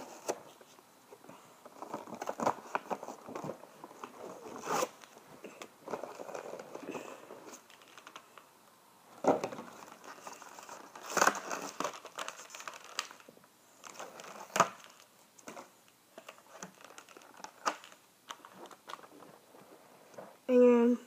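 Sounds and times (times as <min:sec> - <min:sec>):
plastic packaging crinkling: 0:01.6 - 0:05.2, 0:05.8 - 0:08.5, 0:09.4 - 0:19.7.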